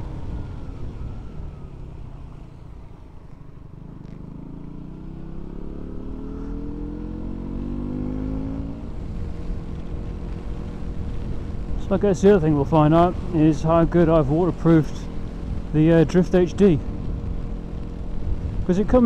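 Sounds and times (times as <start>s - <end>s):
motorcycle engine revving: 3.5s - 11.8s.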